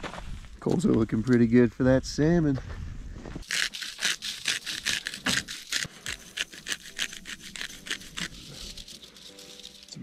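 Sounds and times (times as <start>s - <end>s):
rapid scraping strokes: 3.4s - 10.0s.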